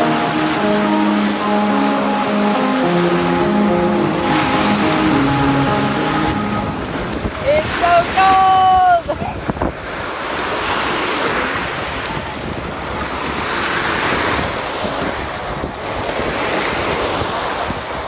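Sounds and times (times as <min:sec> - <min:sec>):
small waves washing on sand: 0:00.0 - 0:18.0
wind buffeting microphone: 0:06.2 - 0:18.0.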